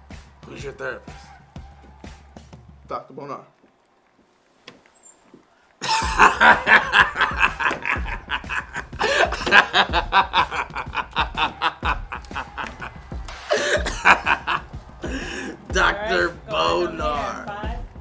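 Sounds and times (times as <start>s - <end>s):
music with low thumping beat: 0.0s - 2.9s, 5.8s - 18.0s
people laughing: 5.8s - 17.5s.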